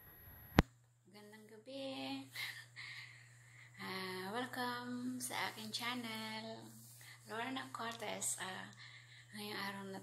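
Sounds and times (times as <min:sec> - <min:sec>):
steady low hum: 0:00.0 - 0:10.0
woman speaking: 0:01.1 - 0:02.5, 0:03.8 - 0:10.0.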